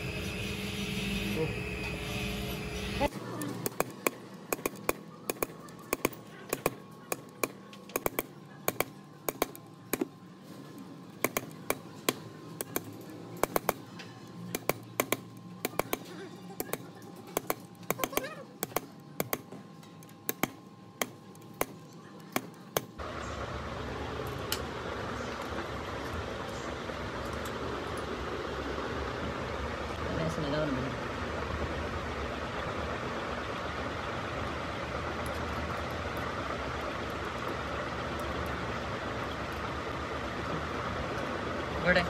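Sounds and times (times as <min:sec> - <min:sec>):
machine whirring: 0:00.0 - 0:29.2.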